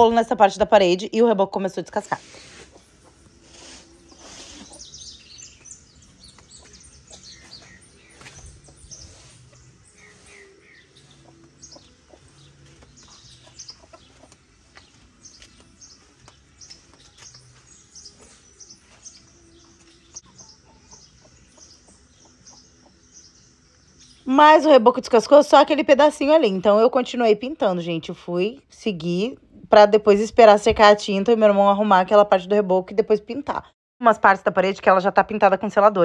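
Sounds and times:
chickens clucking: 0:02.3 - 0:15.0, 0:18.1 - 0:23.1.

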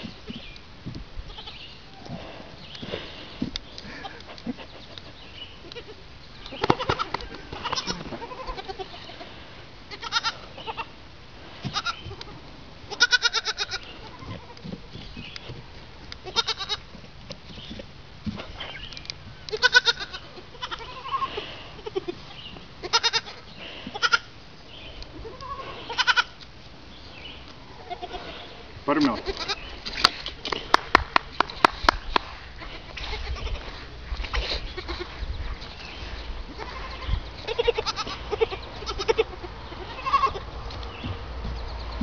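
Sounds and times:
goat kids bleating: 0:01.3 - 0:01.8, 0:05.6 - 0:11.0, 0:11.6 - 0:14.7, 0:16.2 - 0:16.9, 0:19.5 - 0:26.4, 0:27.6 - 0:29.8, 0:32.5 - 0:35.3, 0:36.0 - 0:41.2.

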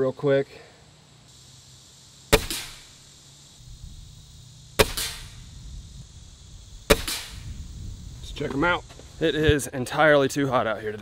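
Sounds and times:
air rifle shots: 0:02.3 - 0:03.0, 0:04.8 - 0:05.6, 0:06.8 - 0:07.6.

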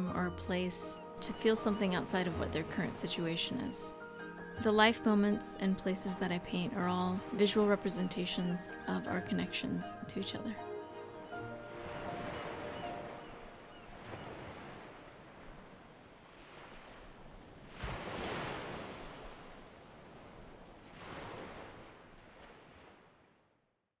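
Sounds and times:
ocean surf breaking: 0:11.4 - 0:23.1.

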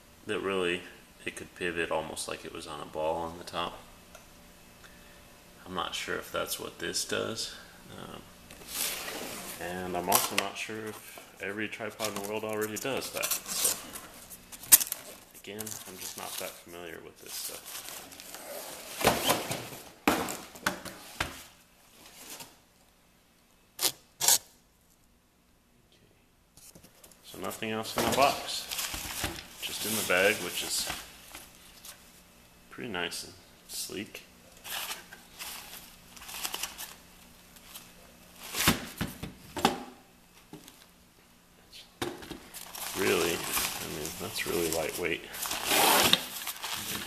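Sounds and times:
nylon bag rustling: 0:42.6 - 0:47.0.

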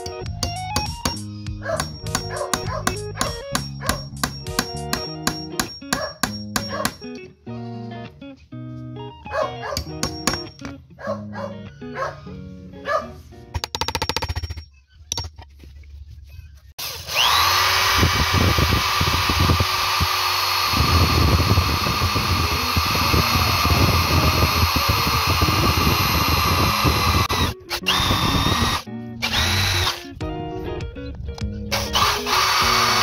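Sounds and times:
electric drill boring into bamboo: 0:16.8 - 0:30.1, 0:31.7 - 0:33.0.

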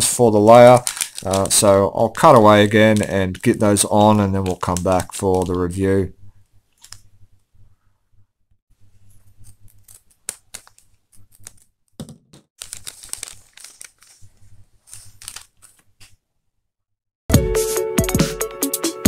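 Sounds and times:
plastic bag crinkling: 0:00.4 - 0:05.9, 0:12.6 - 0:15.8.

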